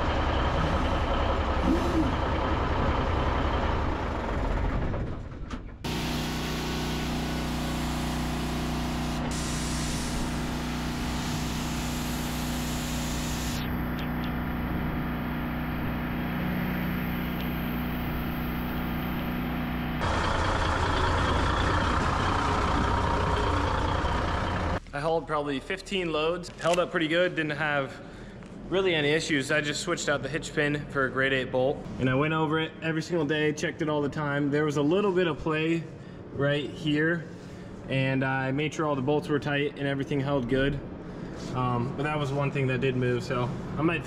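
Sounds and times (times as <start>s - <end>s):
engine running steadily: 0.0s - 5.0s, 5.8s - 24.8s
hiss: 9.0s - 13.8s.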